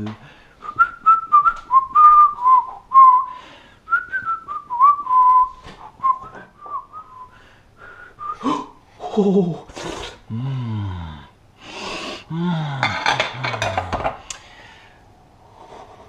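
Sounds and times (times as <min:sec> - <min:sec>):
person whistling a tune: 0:00.6 - 0:08.7.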